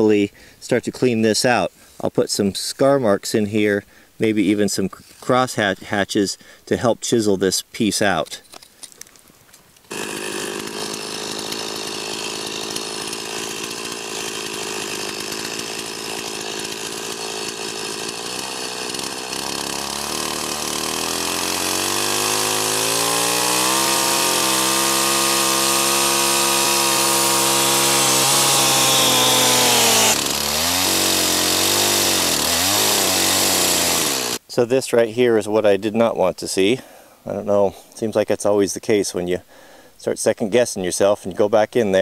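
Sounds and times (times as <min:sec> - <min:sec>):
chainsaw revving and cutting wood: 0:09.8 - 0:34.4.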